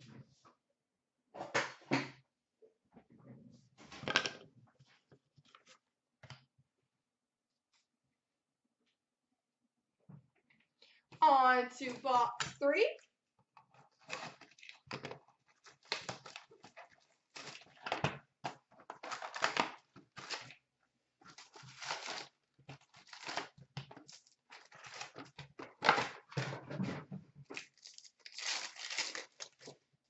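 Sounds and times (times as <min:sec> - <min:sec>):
cardboard and foil wrapper tearing: 0:13.9 - 0:18.0, 0:18.9 - 0:20.6, 0:21.3 - 0:26.3, 0:27.6 - 0:29.8.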